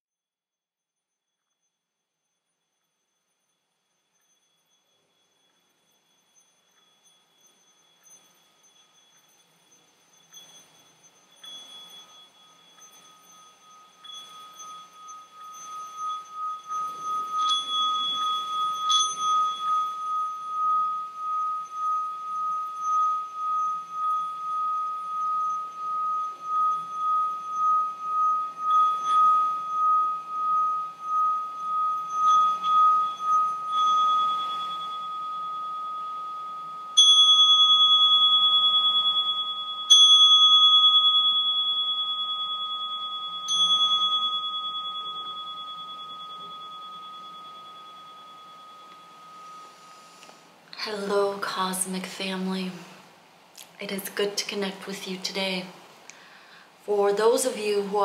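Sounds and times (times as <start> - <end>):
singing bowl ringing tone: 1.3 - 52.9
singing bowl struck: 10.3 - 50.1.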